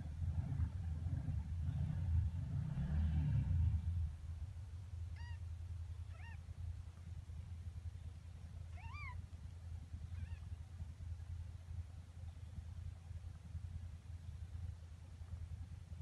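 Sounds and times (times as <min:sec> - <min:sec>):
low steady rumble: 0:00.0 - 0:16.0
kittens mewing: 0:05.2 - 0:05.4, 0:06.1 - 0:06.4, 0:08.7 - 0:09.2, 0:10.1 - 0:10.5.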